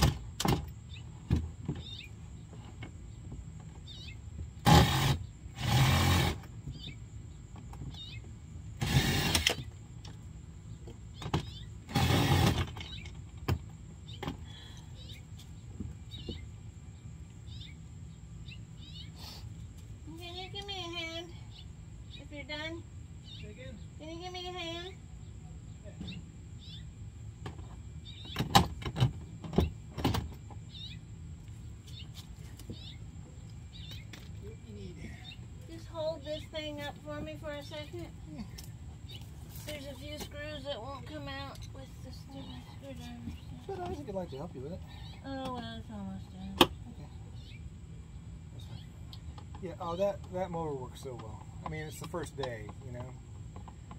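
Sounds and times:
birds chirping faintly: 0.0s - 53.9s
cordless drill whirring: 4.6s - 6.4s, 8.8s - 9.6s.

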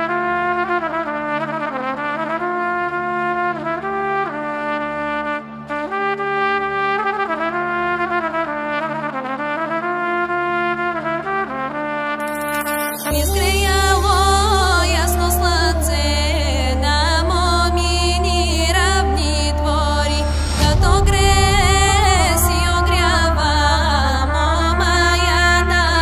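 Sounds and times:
steady low drone: 13.1s - 26.0s.

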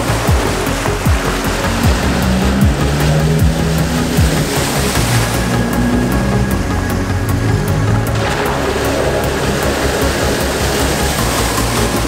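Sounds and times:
held bass line: 0.0s - 12.0s
deep kick drum: 0.3s - 4.6s.

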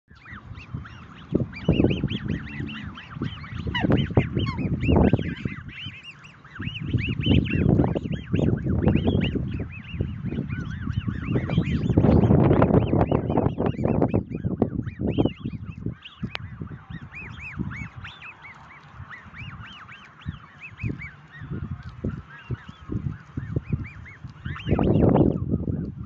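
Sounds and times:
cygnets peeping: 0.1s - 26.0s
low rumbling: 0.2s - 18.0s.

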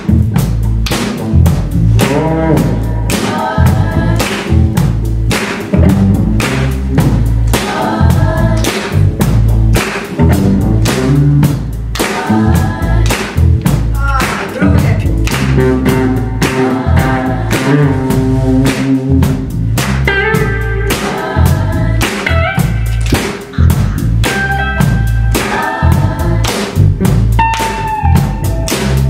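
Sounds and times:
drum kit: 0.0s - 29.0s
electric bass: 0.0s - 29.0s
group of voices singing: 2.0s - 5.0s, 6.6s - 9.5s, 11.1s - 19.2s, 20.7s - 27.9s
electric guitar: 14.6s - 29.0s.

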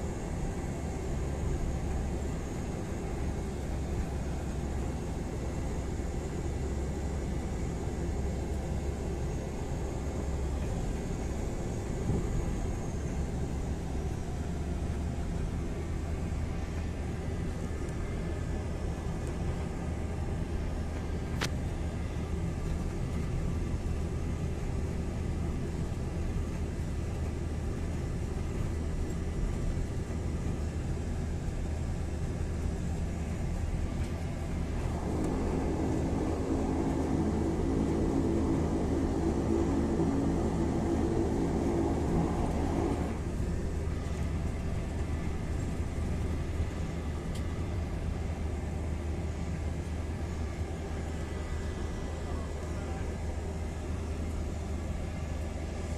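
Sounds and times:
propeller airplane engine droning: 0.0s - 55.9s
loud humming: 34.8s - 43.2s.

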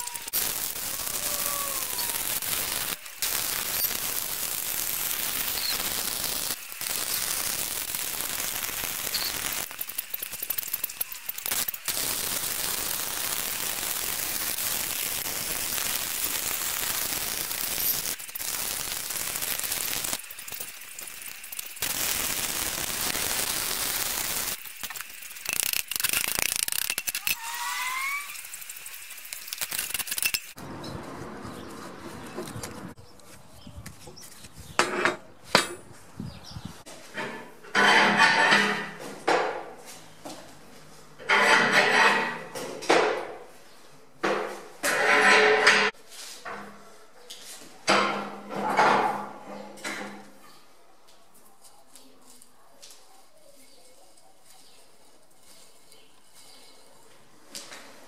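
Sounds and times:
welding arc crackling and sizzling: 0.0s - 30.6s.

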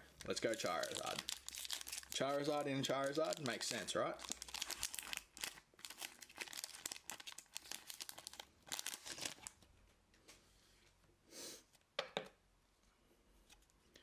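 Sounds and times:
cards rustling: 0.2s - 9.6s
foil wrapper crinkling: 0.2s - 9.6s.

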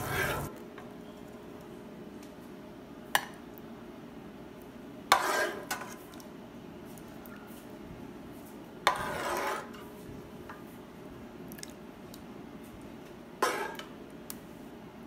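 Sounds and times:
metal spoon scraping a pan: 0.0s - 0.5s, 5.1s - 6.0s, 8.9s - 9.9s, 13.4s - 13.9s.

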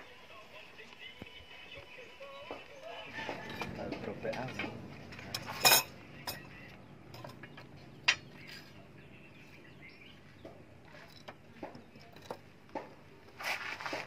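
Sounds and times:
sharp metal clink: 5.3s - 6.5s.

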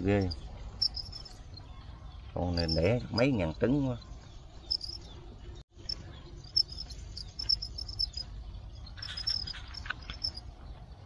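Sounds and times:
crickets chirping: 0.2s - 1.4s, 4.7s - 5.0s, 5.9s - 8.3s, 8.9s - 10.4s.

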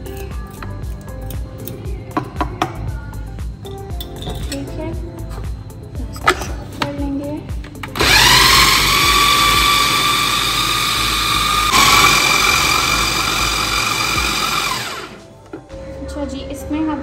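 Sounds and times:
food chopper motor whining: 8.0s - 15.2s.

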